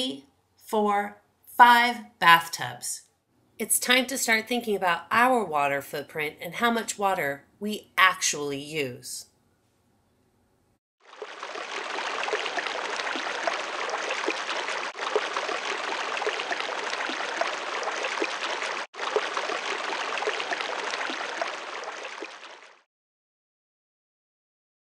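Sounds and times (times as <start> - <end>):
running water splashing: 11.0 - 22.9.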